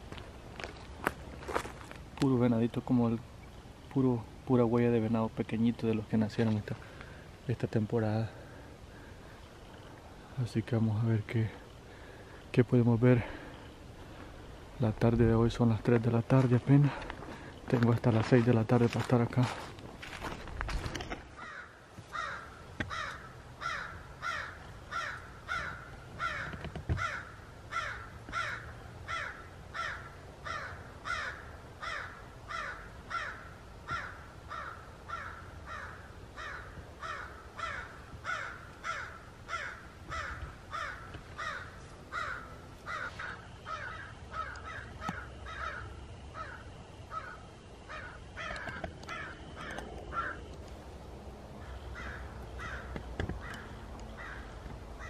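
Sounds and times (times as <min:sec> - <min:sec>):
harsh crow-like animal call: 0:21.3 - 0:50.5, 0:51.5 - 0:55.0.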